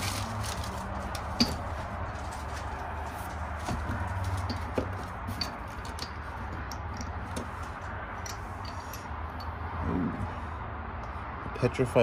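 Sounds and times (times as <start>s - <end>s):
low hum: 8.2s - 10.8s.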